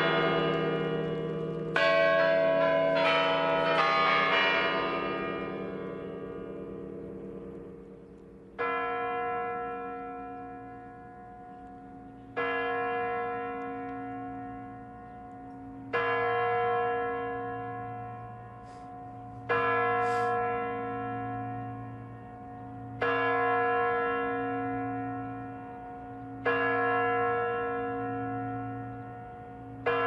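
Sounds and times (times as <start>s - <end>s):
large bell tolling: 0.0s - 8.0s.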